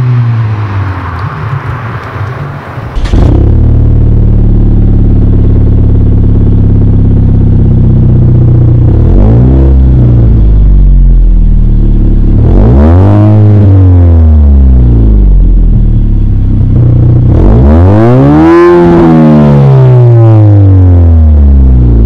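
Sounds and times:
car exhaust idling and revving: 0.0 - 22.0.

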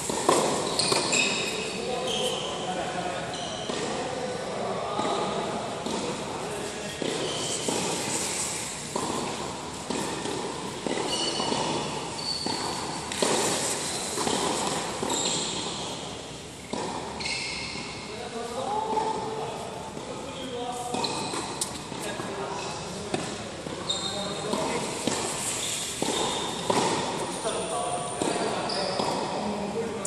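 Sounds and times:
racket striking tennis ball: 0.0 - 1.6, 5.0 - 17.2, 24.4 - 29.4
tennis ball bouncing: 0.0 - 1.6, 5.0 - 18.0, 23.0 - 29.4.

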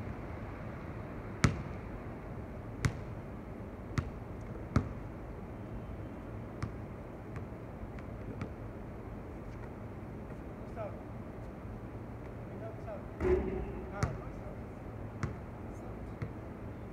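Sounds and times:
background noise: 0.0 - 16.9
basketball bouncing on hard court: 13.2 - 14.3, 15.2 - 15.4.

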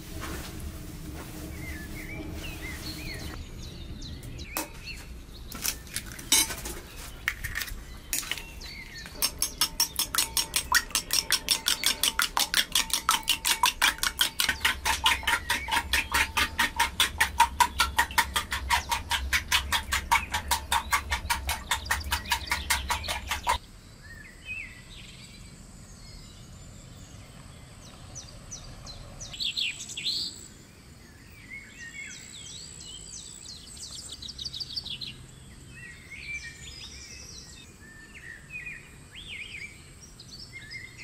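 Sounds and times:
scattered knocks: 9.1 - 23.6
kitchen utensil striking fast: 9.2 - 23.6.

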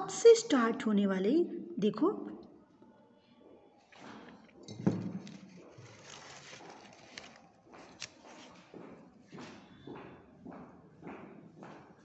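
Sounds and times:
paper rustling and scraping: 5.2 - 8.7.

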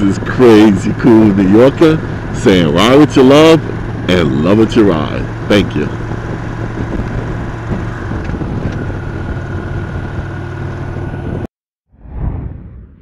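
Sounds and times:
motorcycle engine cruising: 0.0 - 11.5
wind rushing: 12.0 - 13.0.

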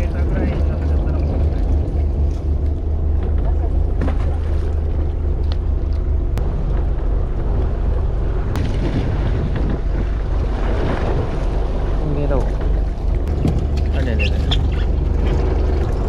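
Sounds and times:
boat engine rumbling: 0.0 - 16.0
sea wash: 0.0 - 16.0
wind on microphone: 6.4 - 16.0.

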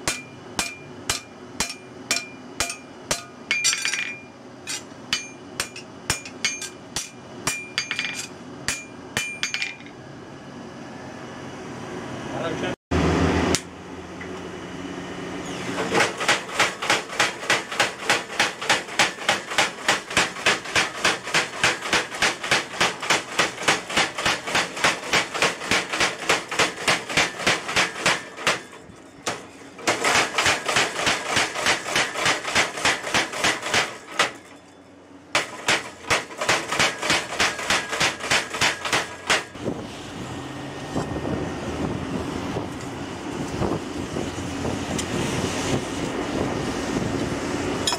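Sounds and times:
power hammer blows on steel: 15.9 - 34.4, 35.4 - 39.8.

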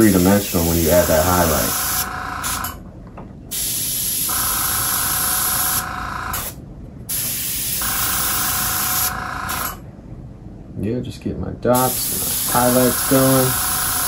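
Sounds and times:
steady hum: 0.0 - 14.0
airbrush hissing: 0.2 - 2.6, 3.5 - 4.3, 6.4 - 9.7, 11.8 - 14.0.

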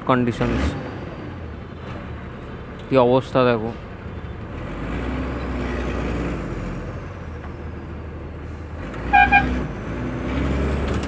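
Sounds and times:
bus engine rumbling: 0.0 - 11.0
vehicle horn short beeps: 9.1 - 9.6.

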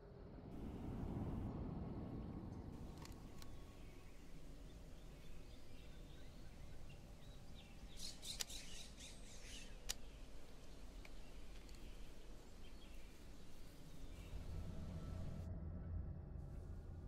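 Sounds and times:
low outdoor hush: 0.1 - 17.0
small birds chirping: 2.8 - 14.5.

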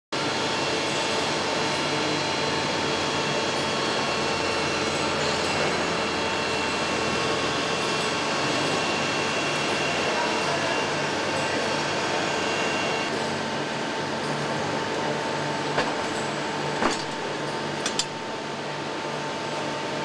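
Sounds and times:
factory machinery hum: 0.2 - 20.0.

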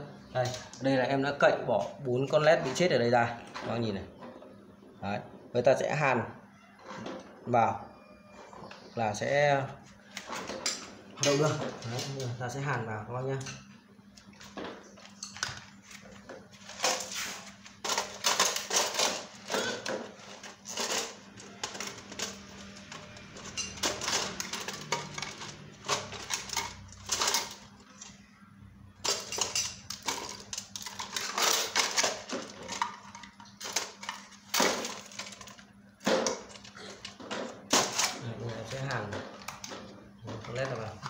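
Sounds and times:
metal parts clinking in a tin: 16.7 - 27.7, 29.0 - 38.2.

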